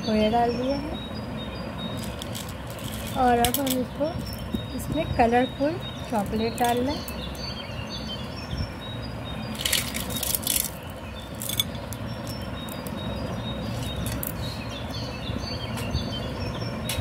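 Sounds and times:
background hum: 0.0 - 17.0
candies rustling and clicking: 2.0 - 3.8.

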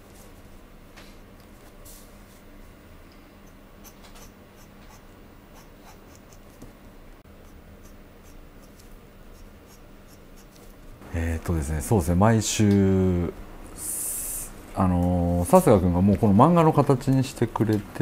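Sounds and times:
pen nib scratching on paper: 3.8 - 6.5, 7.4 - 10.7.

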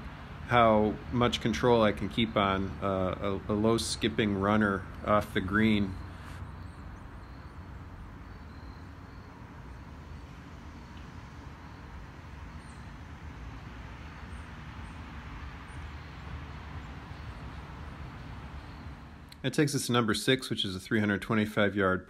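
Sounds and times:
faint high chirps: 4.6 - 13.4.

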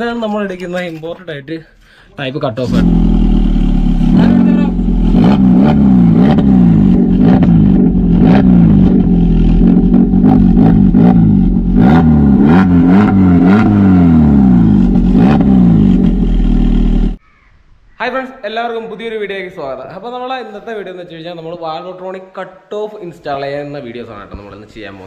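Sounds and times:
car engine revving: 2.5 - 17.2.

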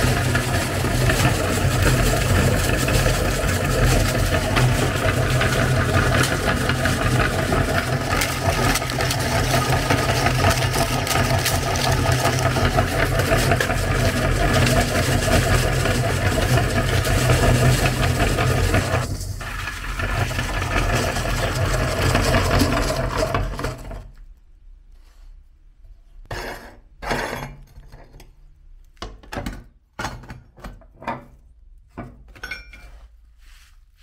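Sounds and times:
electric grinder crunching cones: 0.0 - 24.0.

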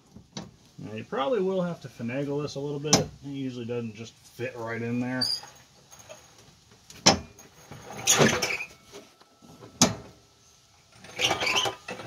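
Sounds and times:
metal scraping and rubbing: 4.4 - 6.6, 7.2 - 12.0.

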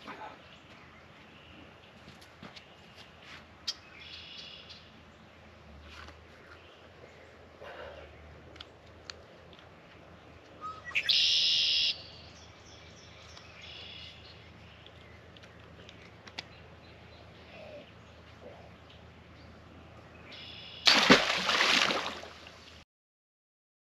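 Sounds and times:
bird chirping: 3.6 - 5.4, 10.4 - 20.9
splash and thump at water: 20.9 - 22.5.

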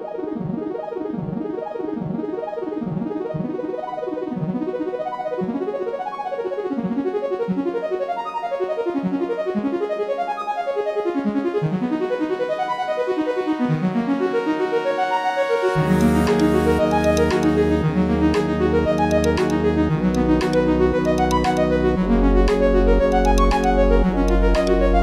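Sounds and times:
piano intro music: 15.3 - 25.0.

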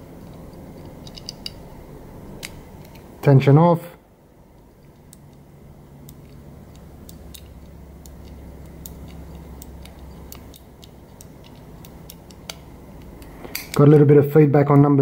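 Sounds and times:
padlock number wheels clicking: 4.8 - 13.8.

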